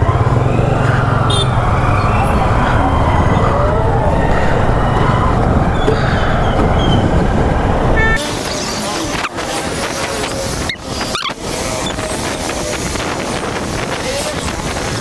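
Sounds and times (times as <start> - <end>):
motorcycle engine running: 0.0 - 3.4
street traffic: 0.0 - 15.0.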